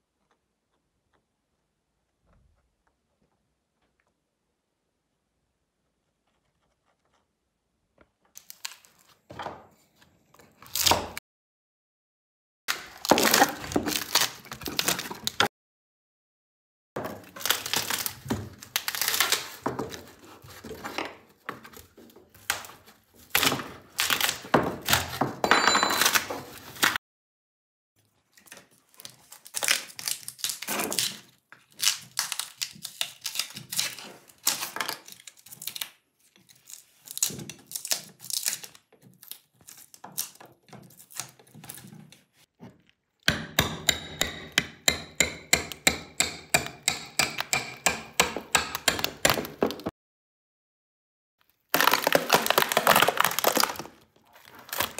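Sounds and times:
resin cracking and scraping: 0:51.4 - 0:54.9.

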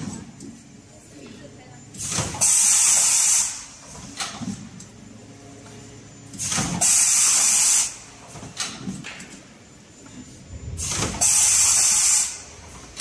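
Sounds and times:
compressed air hissing: 0:02.4 - 0:03.7, 0:06.8 - 0:08.0, 0:10.8 - 0:12.5.

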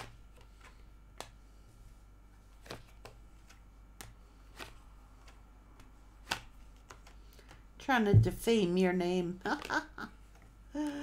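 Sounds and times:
cards shuffling clicks: 0:02.5 - 0:07.6.

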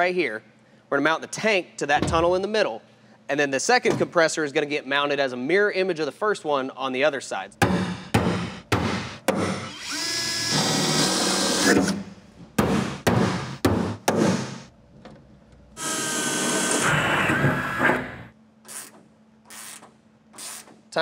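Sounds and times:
electric drill whining: 0:09.7 - 0:11.8, 0:15.8 - 0:18.3.

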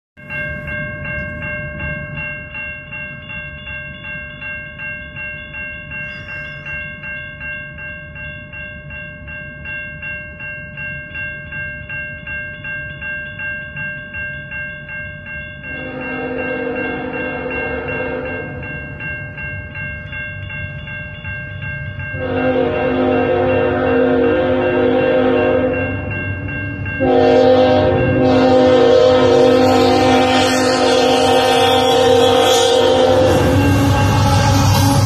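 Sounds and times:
crossing warning bell dinging: 0:00.2 - 0:35.0
locomotive horn: 0:15.8 - 0:18.6, 0:22.2 - 0:25.9, 0:27.0 - 0:35.0.

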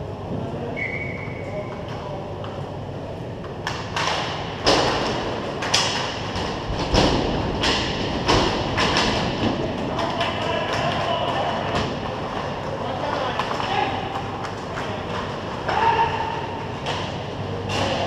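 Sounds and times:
hockey sticks clacking and striking puck: 0:03.4 - 0:18.0.

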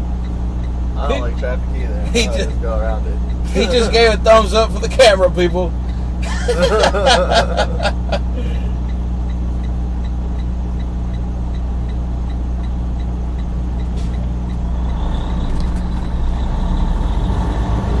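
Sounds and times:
diesel truck engine idling: 0:00.0 - 0:18.0
light ticking: 0:00.2 - 0:00.8, 0:03.2 - 0:04.0, 0:08.8 - 0:16.2.

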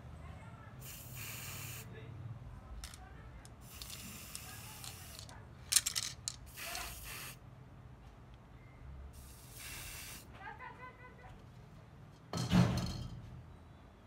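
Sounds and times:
aerosol spray can hissing: 0:00.8 - 0:01.9, 0:03.6 - 0:05.3, 0:06.5 - 0:07.4, 0:09.2 - 0:10.3
short sharp spray puffs: 0:00.8 - 0:01.9, 0:02.8 - 0:07.4, 0:09.2 - 0:10.3.

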